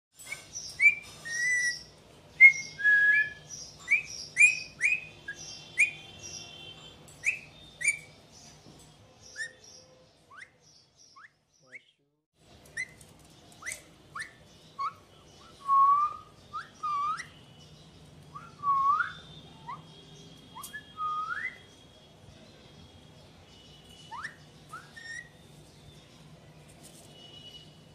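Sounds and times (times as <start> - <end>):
parakeet whistling: 0.4 - 6.5, 7.2 - 8.2, 13.6 - 17.4, 18.3 - 21.7, 23.9 - 25.5.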